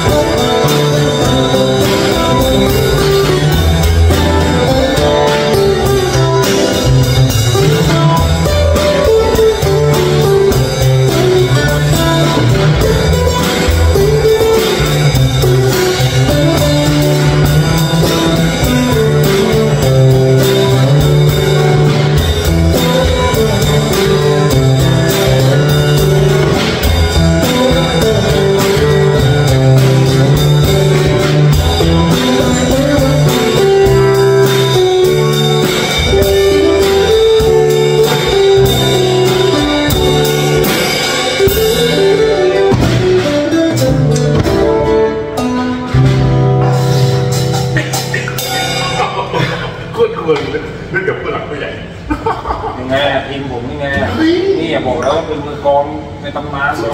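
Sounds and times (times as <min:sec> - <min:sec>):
drum kit beat: 0:00.0 - 0:51.2
acoustic guitars: 0:00.0 - 0:52.2.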